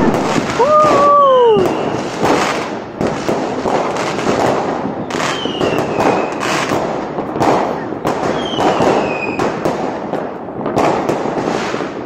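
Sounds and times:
firework whistle: 0.0 - 2.7, 4.9 - 6.7, 7.5 - 9.6
fireworks bangs: 0.0 - 12.0
fireworks crackling: 0.0 - 12.0.

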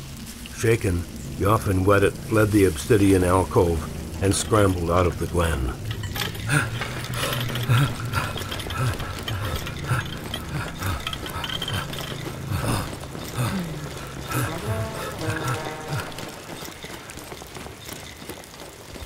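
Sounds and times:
mechanism clicking and rattling: 4.4 - 19.0.

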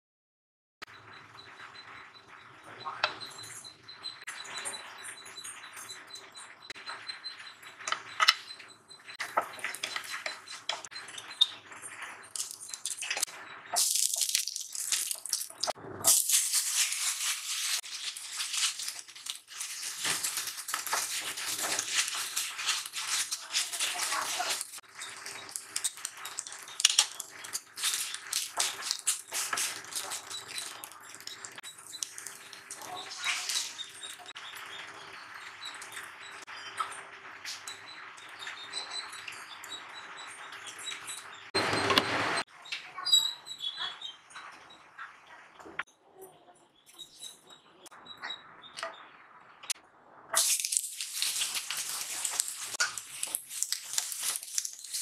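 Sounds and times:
seeds sizzling in hot oil: 12.3 - 34.2, 50.4 - 55.0
water pouring: 13.8 - 34.2, 50.4 - 55.0
rice scraping against pan: 16.1 - 31.3.

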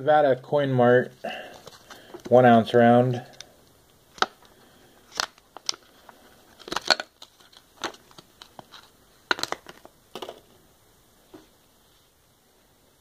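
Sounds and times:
plastic sleeve crinkling: 1.2 - 2.4, 4.1 - 10.4.

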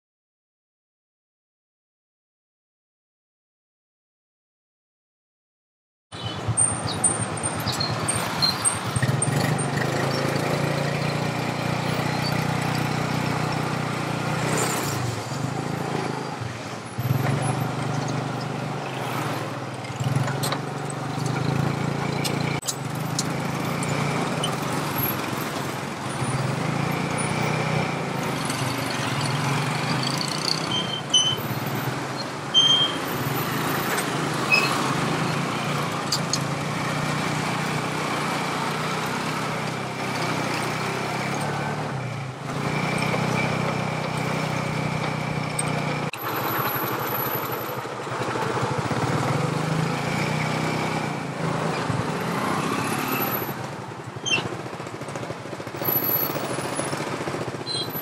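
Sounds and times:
vehicle engine running: 17.0 - 58.0.

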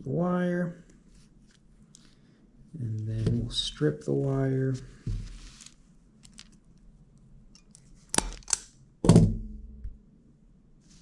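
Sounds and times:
handling of wire: 4.8 - 8.6.

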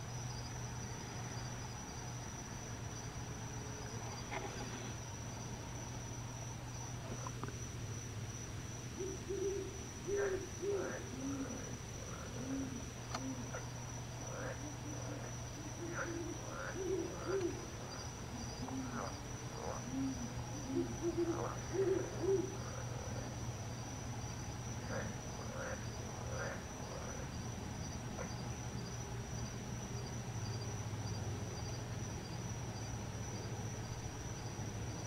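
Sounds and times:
high insect trill: 0.0 - 35.0
low steady hum: 0.0 - 35.0
owl hooting: 9.0 - 13.6, 14.3 - 23.3.

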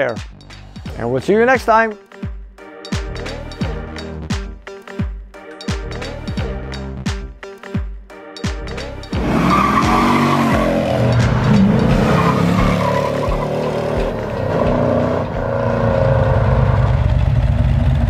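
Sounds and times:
engine revving: 9.0 - 18.0.

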